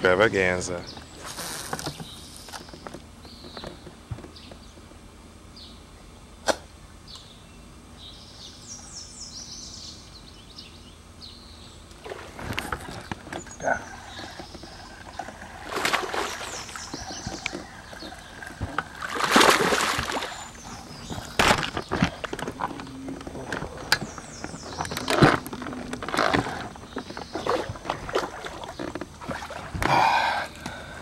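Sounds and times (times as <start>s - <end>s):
water splashing and sloshing: 11.9s - 30.3s.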